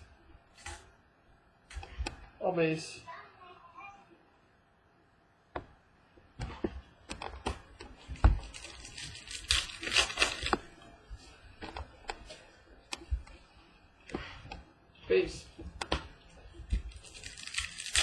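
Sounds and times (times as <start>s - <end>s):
foil pack rustling and tearing: 8.4s - 10.7s, 16.9s - 18.0s.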